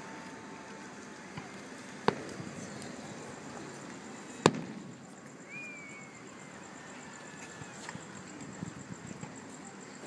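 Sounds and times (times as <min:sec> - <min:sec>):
fireworks bangs with echo: 0:01.3 - 0:03.6, 0:04.2 - 0:05.0.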